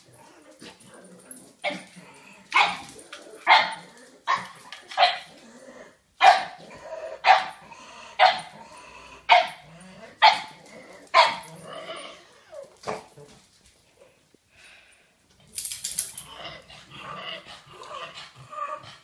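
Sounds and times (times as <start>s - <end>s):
dog barking: 2.6s - 2.8s, 3.5s - 5.3s, 6.2s - 6.6s, 7.2s - 7.6s, 8.2s - 8.5s, 9.3s - 9.6s, 10.2s - 10.6s, 11.2s - 11.5s.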